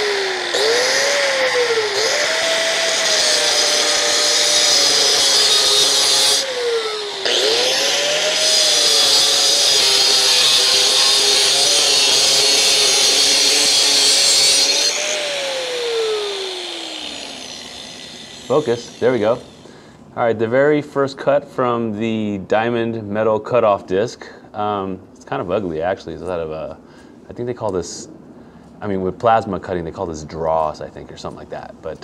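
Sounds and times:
angle grinder motor whine: 0.0s - 19.8s
grinder cutting steel hiss: 0.0s - 19.9s.

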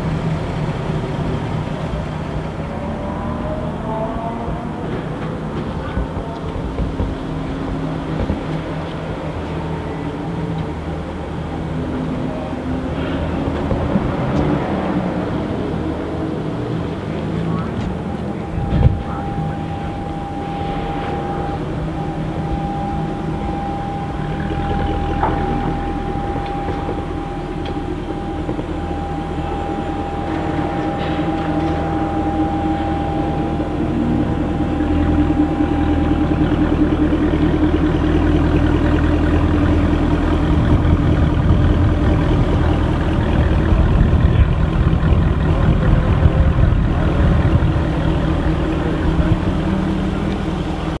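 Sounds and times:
sports cars idling: 0.0s - 51.0s
thin steady high tone: 15.0s - 51.0s.

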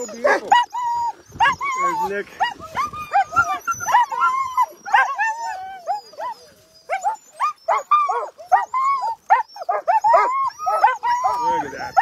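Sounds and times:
dogs yipping and barking: 0.0s - 12.0s.

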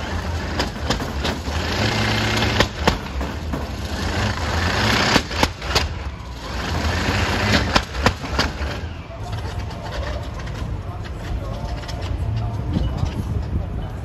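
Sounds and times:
sharp bangs: 0.0s - 9.1s
tractor engine deep rumble: 0.0s - 14.0s.

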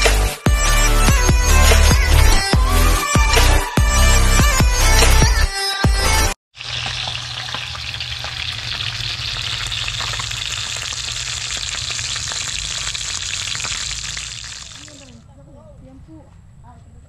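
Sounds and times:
fish frying in hot oil: 6.6s - 15.2s.

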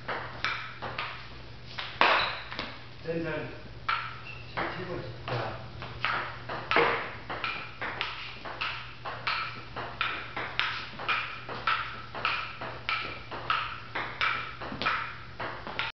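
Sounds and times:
table tennis rally: 0.0s - 2.8s, 3.8s - 15.9s.

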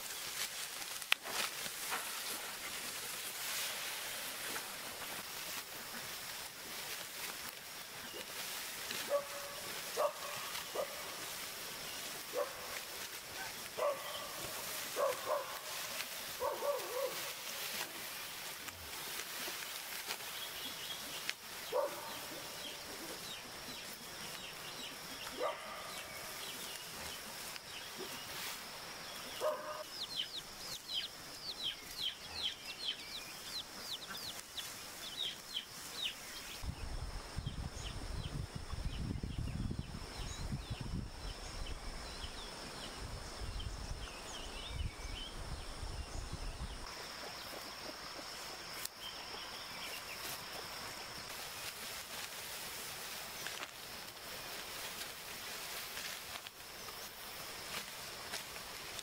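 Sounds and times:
chickens clucking: 47.2s - 48.8s.

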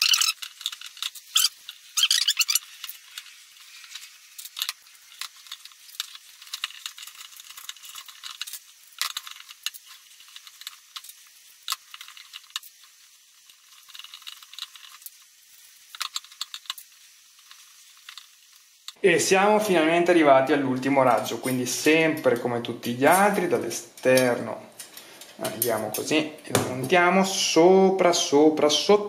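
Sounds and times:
bicycle spokes clicking and rattling: 0.0s - 19.0s.

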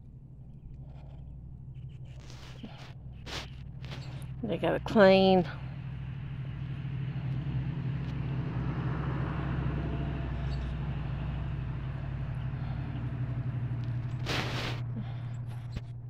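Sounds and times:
low fluttering hum: 0.0s - 16.0s
short breathy burst: 14.2s - 15.7s.

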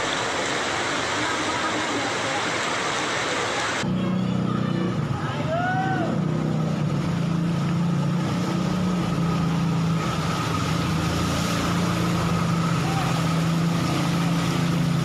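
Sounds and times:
water washing: 0.0s - 3.8s, 4.9s - 15.0s
street noise: 0.0s - 15.0s
truck engine hum with whine: 3.7s - 15.0s.

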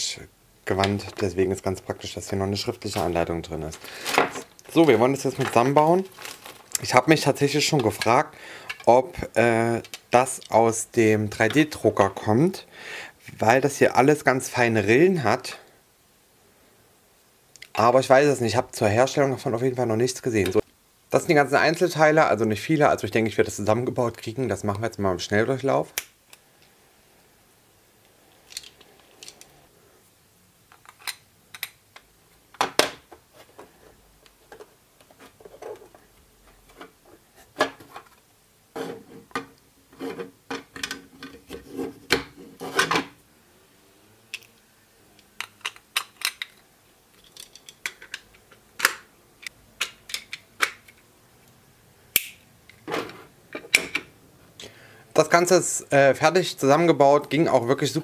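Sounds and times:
plastic parts clicking and knocking: 7.8s - 8.9s, 30.7s - 38.2s, 40.2s - 43.2s, 45.2s - 51.1s.

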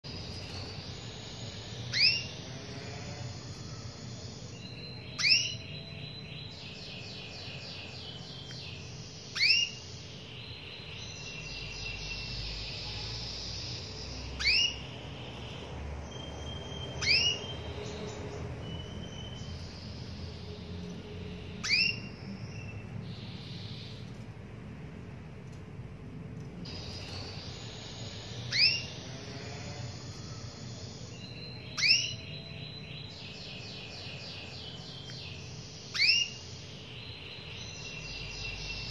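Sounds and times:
birds trilling and twittering: 0.0s - 38.9s
canary call notes: 1.3s - 6.2s, 7.3s - 10.0s, 11.5s - 20.7s, 21.4s - 24.2s, 26.7s - 32.8s, 35.8s - 36.6s.

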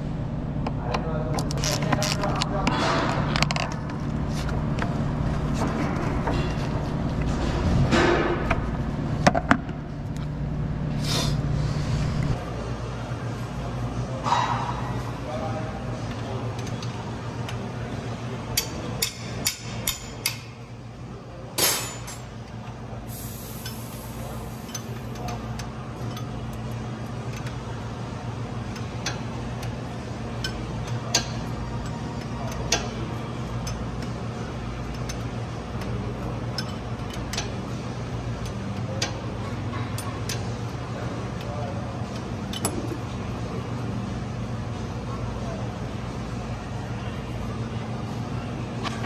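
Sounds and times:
wrench clicking against metal: 24.5s - 26.3s, 36.5s - 37.6s.

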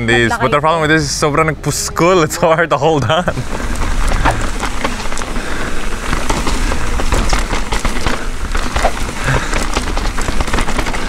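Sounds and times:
mountain bike rattling over rocks: 3.0s - 11.0s
wind rumble on microphone: 3.2s - 11.0s.

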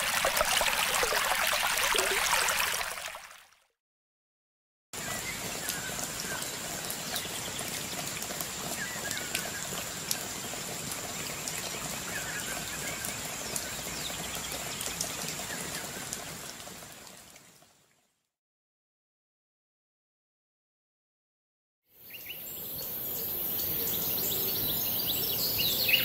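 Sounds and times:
stream water flowing: 0.0s - 3.6s, 5.0s - 18.0s.

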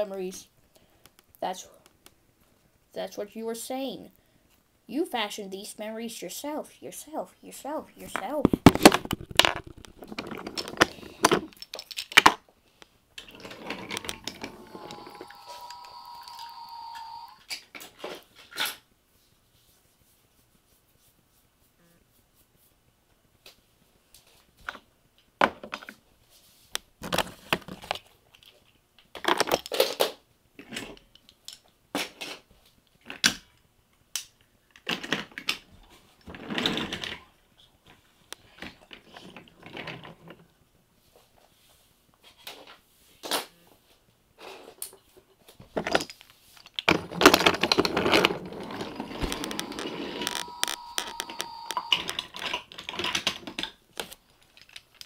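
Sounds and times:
small hard objects clattering: 8.0s - 12.4s, 45.8s - 55.0s.

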